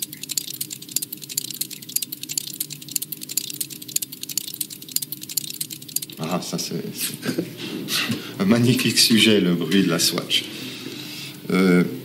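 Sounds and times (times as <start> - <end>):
watches ticking: 0.0 - 6.2
low steady hum: 0.0 - 9.7.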